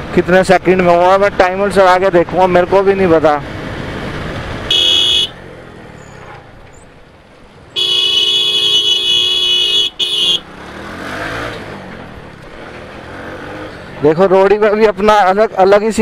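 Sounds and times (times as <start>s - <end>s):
motorcycle riding noise: 0.0s - 16.0s
vehicle horn honking: 4.7s - 5.4s, 7.7s - 10.5s.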